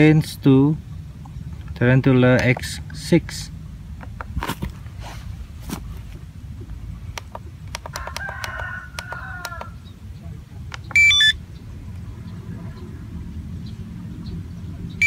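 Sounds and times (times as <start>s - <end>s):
rooster crowing: 7.8s - 10.0s
electronic beeps stepping in pitch: 10.8s - 11.4s.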